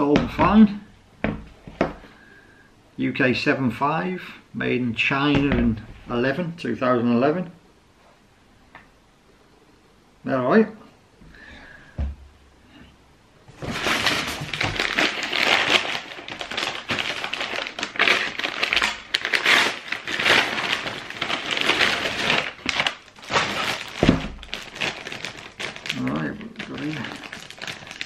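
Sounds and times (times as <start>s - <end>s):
paper and plastic crinkling: 13.5s - 28.0s.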